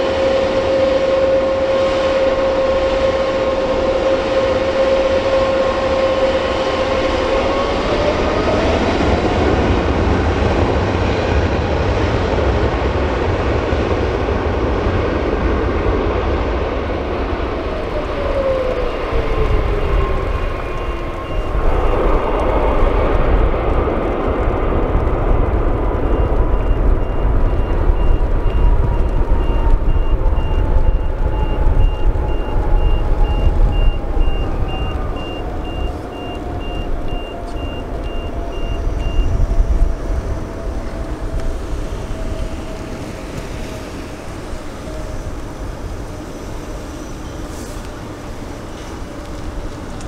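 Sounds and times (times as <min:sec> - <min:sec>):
jet engines rumbling with fan whine: 0:00.0 - 0:50.0
faint high-pitched beeping: 0:18.0 - 0:22.8, 0:26.0 - 0:39.4.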